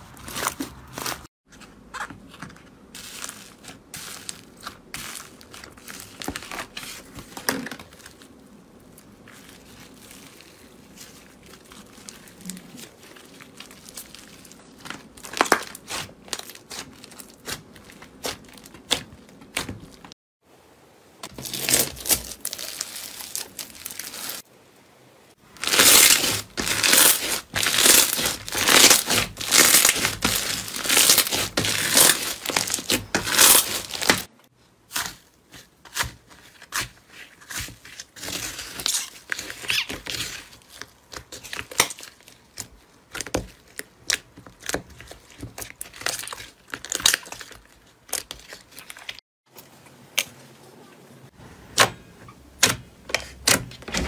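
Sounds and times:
slime crunching when squeezed: 0:08.9 - 0:19.6, 0:25.6 - 0:34.3.

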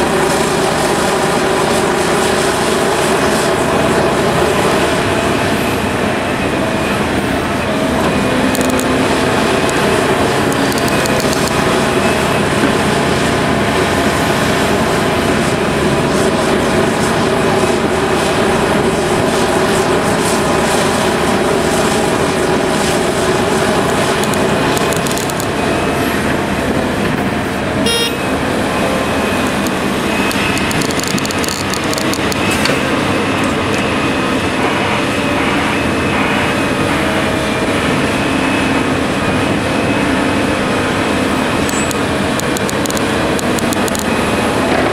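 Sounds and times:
excavator engine drone: 0:00.0 - 0:44.9.

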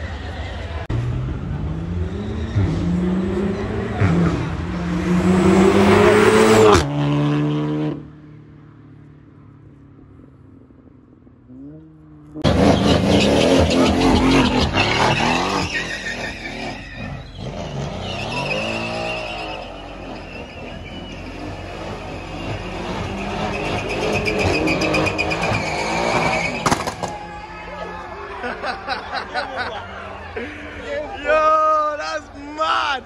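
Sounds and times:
car engine revving: 0:00.8 - 0:08.3, 0:11.4 - 0:27.4.

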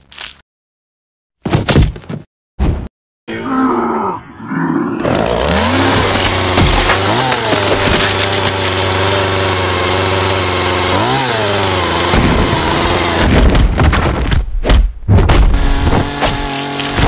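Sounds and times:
chainsaw engine revving: 0:05.0 - 0:13.3, 0:15.6 - 0:17.0.

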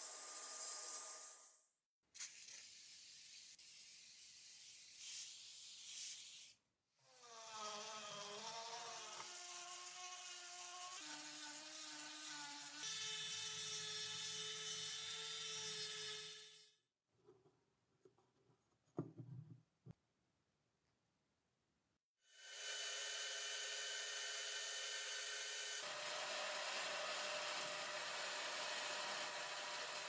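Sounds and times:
aerosol spray can hissing: 0:02.2 - 0:04.0.

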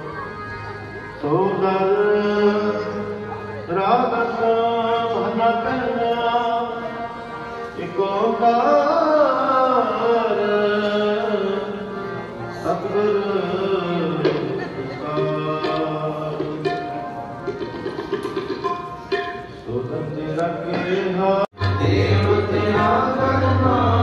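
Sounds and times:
person singing a hymn: 0:00.0 - 0:16.9, 0:19.7 - 0:24.0
harmonium held tones: 0:00.0 - 0:20.1, 0:21.5 - 0:24.0
tabla strokes: 0:15.2 - 0:19.6.

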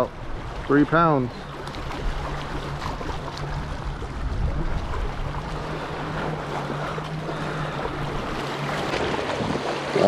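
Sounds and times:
low hum: 0:00.0 - 0:10.0
water lapping: 0:00.0 - 0:10.0
wind buffeting microphone: 0:01.8 - 0:06.7.

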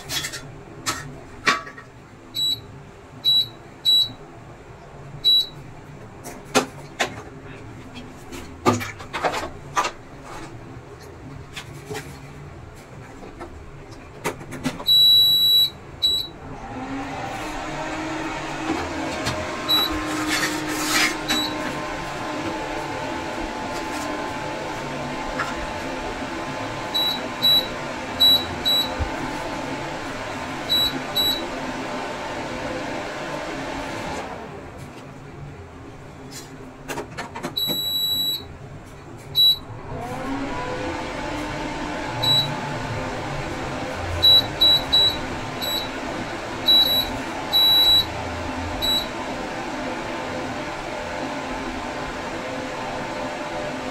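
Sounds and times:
cooktop fan whirring: 0:00.0 - 0:53.9
short high buzzer beeps: 0:03.3 - 0:04.2, 0:05.2 - 0:05.6, 0:14.9 - 0:16.3, 0:19.7 - 0:20.0, 0:21.3 - 0:21.6, 0:26.9 - 0:29.0, 0:30.7 - 0:31.4, 0:37.6 - 0:38.5, 0:39.4 - 0:39.6, 0:42.2 - 0:42.5, 0:44.2 - 0:45.9, 0:46.7 - 0:48.1, 0:48.8 - 0:49.1.

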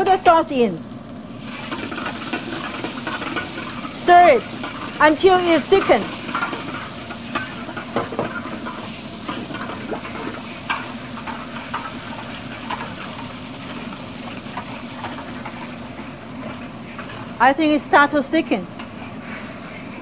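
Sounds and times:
sauce cooking in a wok: 0:00.1 - 0:20.0
spatula scraping and tapping wok: 0:01.6 - 0:17.4.

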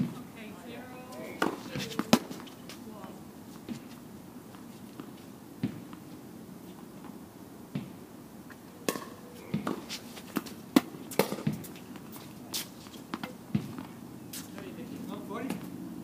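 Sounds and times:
tennis balls struck and bouncing: 0:00.0 - 0:04.0, 0:05.0 - 0:06.0, 0:07.0 - 0:14.0.

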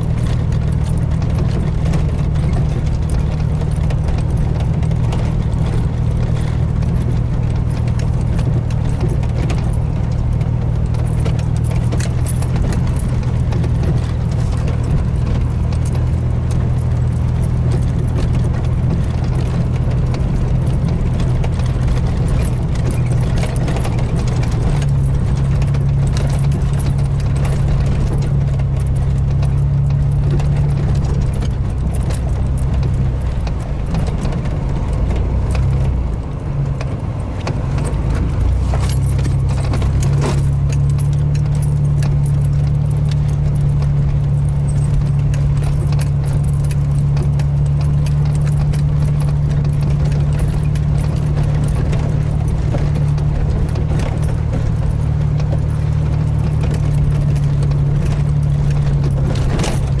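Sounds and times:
cab rattles and knocks: 0:00.0 - 1:00.0
truck engine droning: 0:00.0 - 1:00.0.

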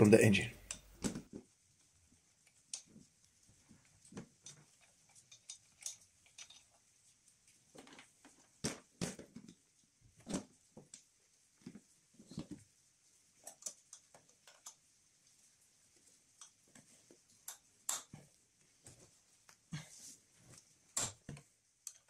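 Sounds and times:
hands handling hoses and fittings: 0:02.4 - 0:12.7.

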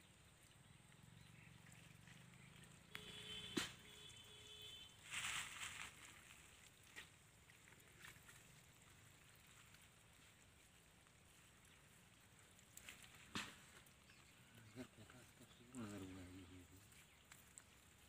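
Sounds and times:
muddy water sloshing and splashing: 0:00.1 - 0:18.0
sharp tap: 0:03.5 - 0:03.8.

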